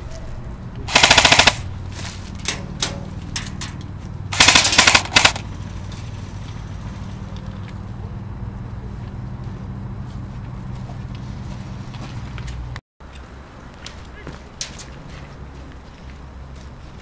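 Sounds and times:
airsoft rifle bursts: 0.9s - 1.6s, 4.4s - 5.5s.

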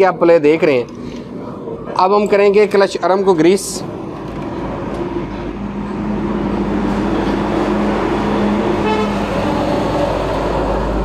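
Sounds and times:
car horn toot: 8.8s - 9.4s.

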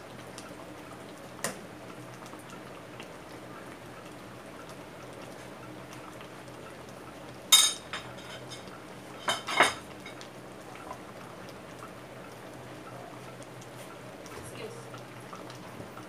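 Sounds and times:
curry bubbling in pot: 0.0s - 16.0s.

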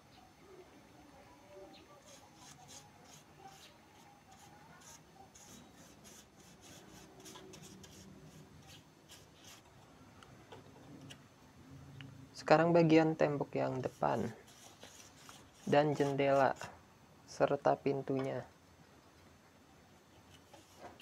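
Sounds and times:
paintbrush stroking on wood: 2.0s - 9.7s, 13.7s - 16.7s, 20.3s - 21.0s.

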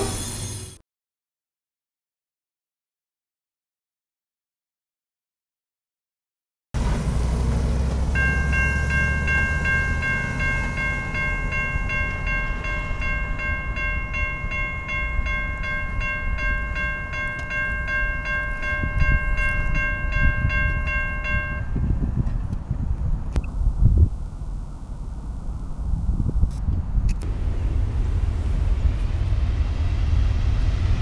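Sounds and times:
railroad crossing bell ringing: 0.0s - 0.7s, 8.1s - 22.0s
wind rumble on microphone: 11.8s - 31.0s.

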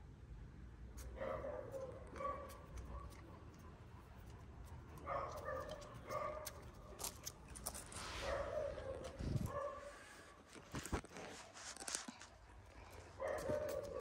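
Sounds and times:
clicks and rubbing on microphone: 10.5s - 12.4s.

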